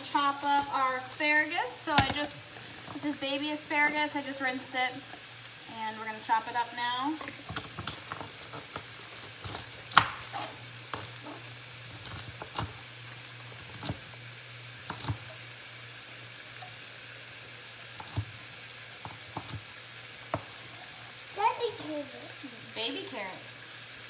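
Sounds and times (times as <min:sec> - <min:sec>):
chicken sizzling in a frying pan: 0:00.0 - 0:24.0
knife chopping on cutting board: 0:09.4 - 0:11.1.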